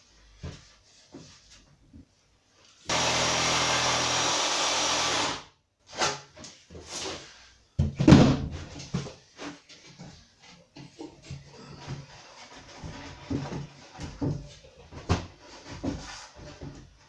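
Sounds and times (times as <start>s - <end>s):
jigsaw cutting worktop: 2.9s - 5.5s.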